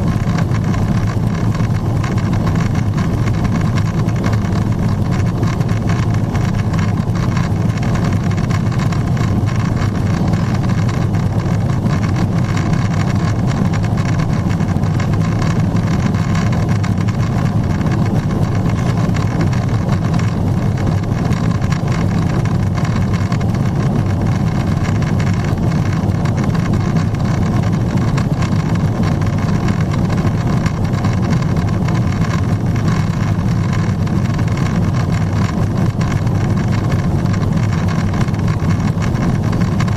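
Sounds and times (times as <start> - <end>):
airflow rushing over fuselage: 0.0 - 39.9
jet engine low rumble: 0.0 - 39.9.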